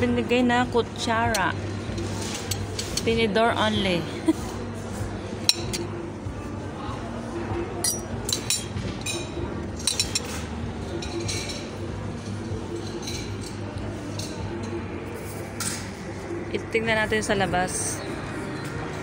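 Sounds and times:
cafe background hum: 0.0s - 19.0s
cutlery clinking on a plate: 5.4s - 6.0s, 7.8s - 11.8s, 12.4s - 14.8s.

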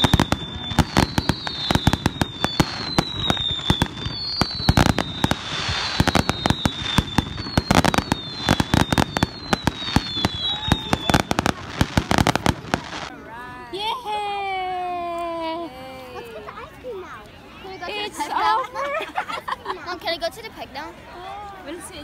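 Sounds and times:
high firework whistle: 0.0s - 13.0s
fireworks bangs and crackles: 0.0s - 13.1s.

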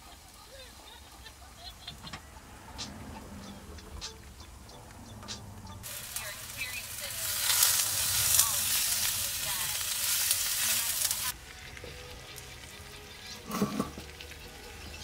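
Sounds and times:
meat sizzling in skillet: 5.8s - 15.0s.

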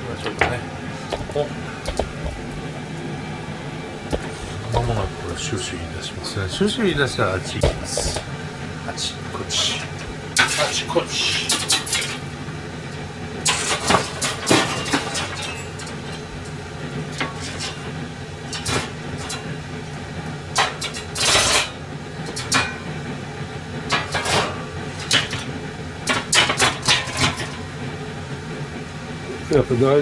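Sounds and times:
steady low hum: 0.0s - 30.0s
cookware clattering: 23.9s - 25.5s, 26.1s - 27.6s.

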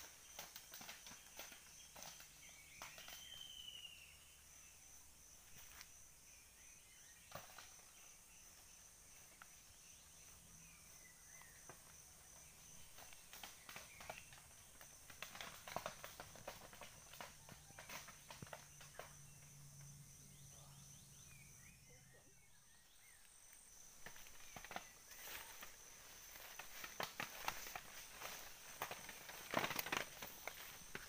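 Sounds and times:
faint chirps: 0.0s - 14.8s, 17.0s - 31.0s
high insect drone: 0.0s - 31.0s
clicks and rustles: 24.0s - 31.0s.

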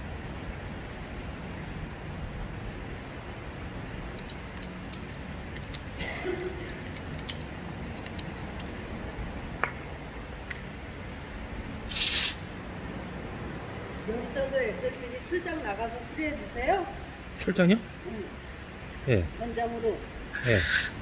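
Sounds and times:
steady low hum: 0.0s - 21.0s
hand tool clicks and taps: 4.2s - 9.8s
short loud hiss: 11.9s - 12.5s, 20.3s - 21.0s.

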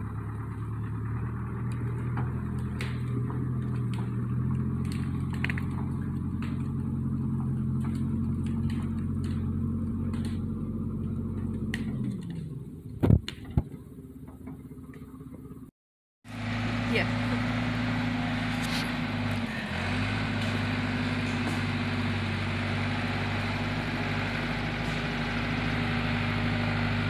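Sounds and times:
diesel engine working: 0.0s - 27.0s
wood cracking and snapping: 1.4s - 13.5s.

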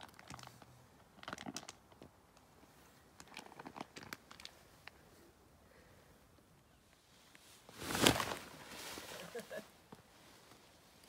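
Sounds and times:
sleeping bag nylon crinkling: 7.6s - 9.6s.

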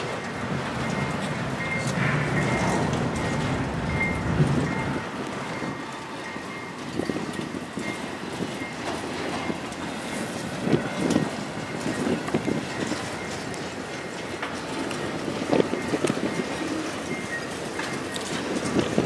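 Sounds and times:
heavy knocks of train cars: 0.0s - 6.0s
train wheels rumbling on rails: 0.0s - 19.0s.

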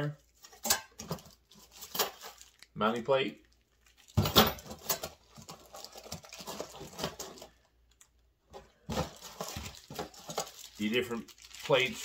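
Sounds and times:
packaging clicking and rustling: 0.3s - 12.0s
hands rummaging in cardboard box: 4.1s - 7.6s, 8.6s - 11.0s.

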